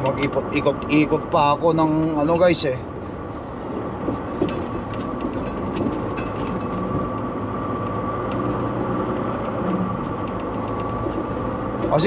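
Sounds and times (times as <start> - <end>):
truck diesel engine and road noise: 0.0 - 12.0.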